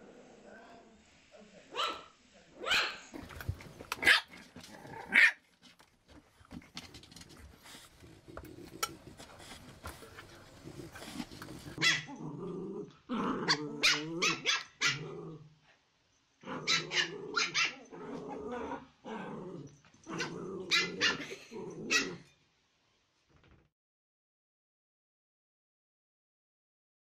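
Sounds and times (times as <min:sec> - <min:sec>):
puppies growling: 0:03.1 - 0:15.5, 0:16.4 - 0:22.3
puppies barking: 0:03.9 - 0:04.4.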